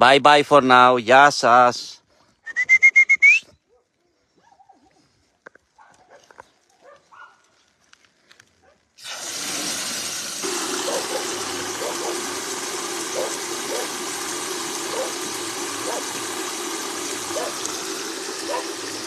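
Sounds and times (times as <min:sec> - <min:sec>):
water pouring into metal buckets: 0:09.0 - 0:19.0.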